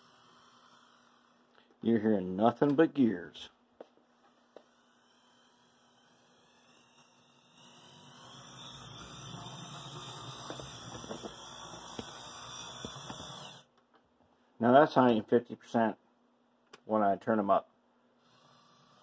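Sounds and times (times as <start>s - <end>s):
model locomotive gear whine: 0.0s - 1.6s, 4.1s - 13.7s, 18.2s - 19.0s.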